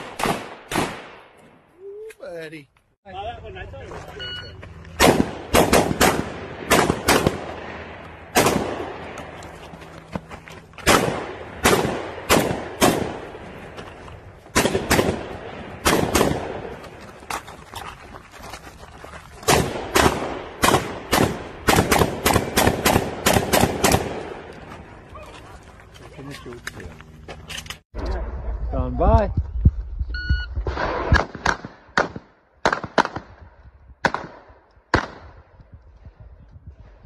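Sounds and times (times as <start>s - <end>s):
rapid gunfire: 19.5s - 24.3s.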